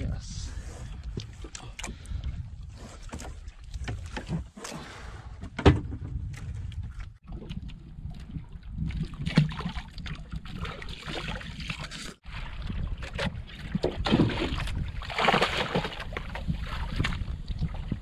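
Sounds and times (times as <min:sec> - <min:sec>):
water splashing against hull: 0:06.1 - 0:18.0
fish thrashing in water: 0:07.2 - 0:17.8
wind buffeting microphone: 0:12.3 - 0:18.0.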